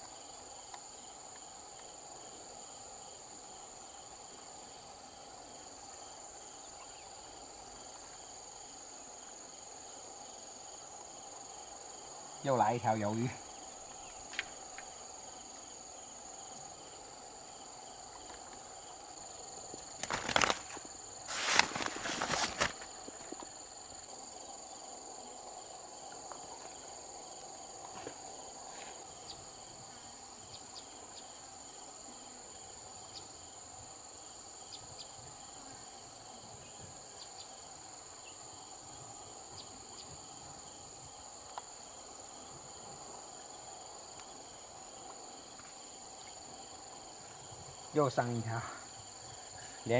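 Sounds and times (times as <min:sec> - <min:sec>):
insects chorus shrill tone: 0:12.3 - 0:17.0
loud rustling handling noise: 0:20.0 - 0:22.9.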